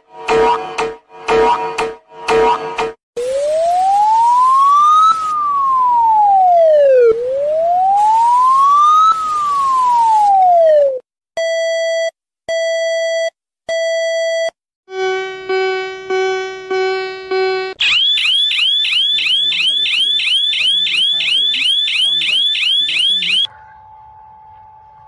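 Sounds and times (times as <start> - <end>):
wailing emergency siren: 3.2 - 11.0, 17.8 - 25.0.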